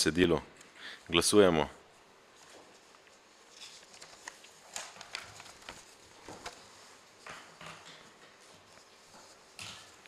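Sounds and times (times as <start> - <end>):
rustling: 2.3 - 10.0.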